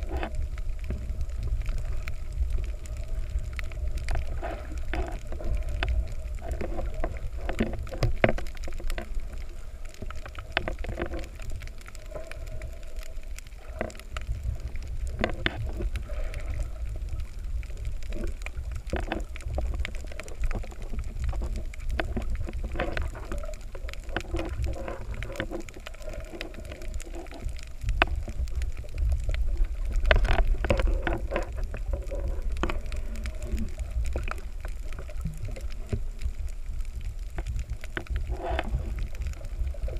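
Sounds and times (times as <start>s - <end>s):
clicks and crackles: 0.0s - 39.9s
underwater rumble of moving water: 0.0s - 39.9s.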